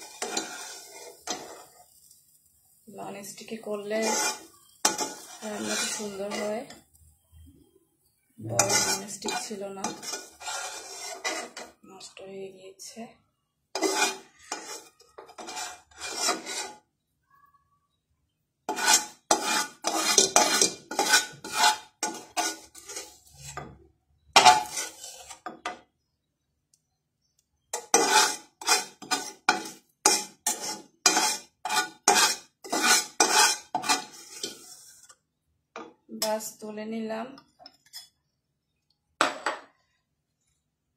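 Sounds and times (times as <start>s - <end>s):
spatula scraping metal pan: 0.0s - 2.2s, 3.2s - 6.9s, 8.4s - 11.8s, 13.7s - 16.9s, 18.7s - 25.8s, 27.7s - 35.2s.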